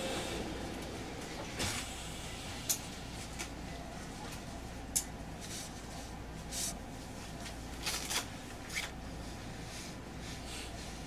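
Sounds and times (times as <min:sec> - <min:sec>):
train rumble and hum: 0:00.0 - 0:11.0.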